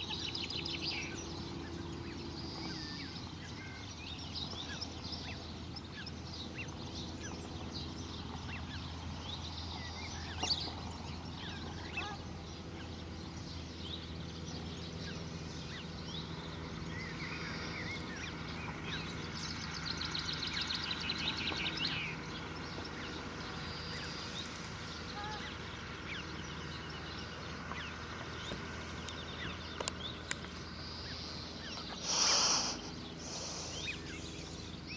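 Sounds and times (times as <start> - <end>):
birds chirping: 0.0 - 34.9
steady low hum: 0.0 - 34.9
rapid ticking bird calls: 14.6 - 34.9.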